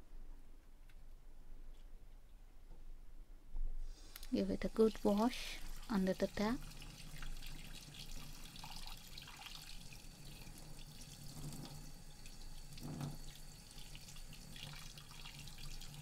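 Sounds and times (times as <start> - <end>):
tap water running into sink: 4.7 - 16.0.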